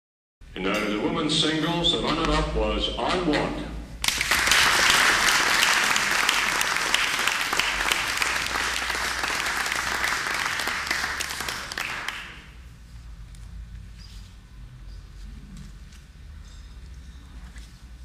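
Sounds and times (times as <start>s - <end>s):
audience applauding: 4.0s - 12.5s.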